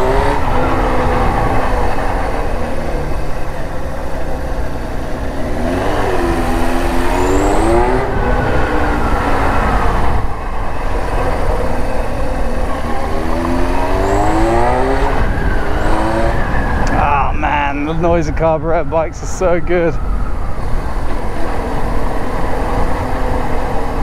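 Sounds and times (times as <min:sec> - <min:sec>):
motorcycle engine accelerating: 0:00.0 - 0:17.6
wind rushing over microphone: 0:05.5 - 0:24.0.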